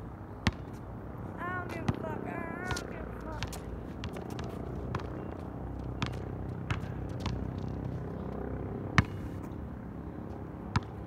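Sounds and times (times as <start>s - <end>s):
basketball bouncing on asphalt: 0.4s - 0.9s, 2.6s - 11.0s.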